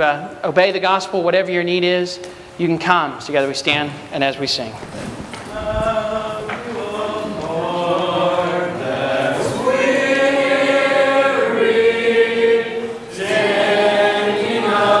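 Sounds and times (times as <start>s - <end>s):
congregation singing a hymn: 5.3s - 15.0s.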